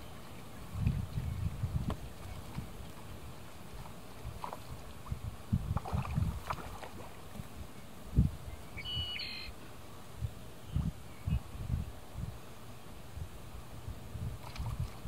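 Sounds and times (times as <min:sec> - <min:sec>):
wind noise on microphone: 0:00.0 - 0:15.0
short high bird call: 0:08.8 - 0:09.5.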